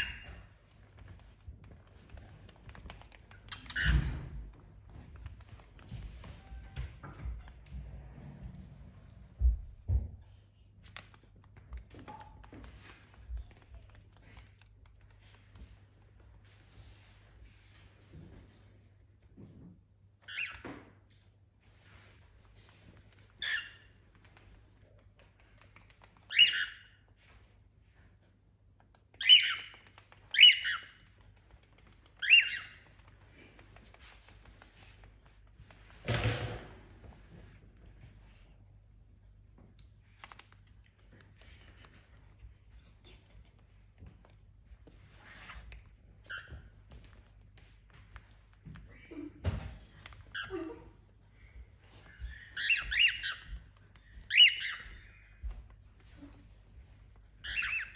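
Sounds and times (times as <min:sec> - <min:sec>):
cockatiel chirping: 0:00.0 - 0:00.4, 0:23.4 - 0:23.9, 0:26.0 - 0:27.0, 0:29.1 - 0:33.0, 0:52.0 - 0:55.4, 0:57.4 - 0:57.9.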